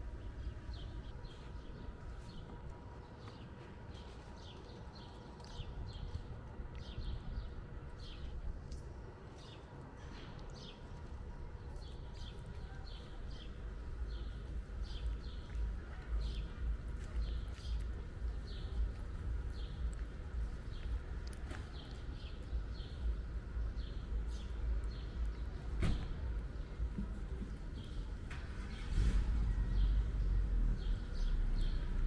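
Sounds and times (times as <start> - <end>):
low steady rumble: 10.4 - 32.0.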